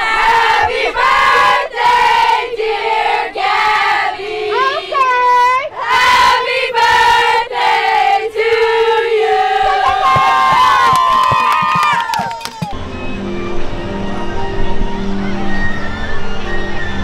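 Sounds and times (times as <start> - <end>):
group chanting through megaphones: 5.7 - 10.0
whoop: 9.8 - 12.8.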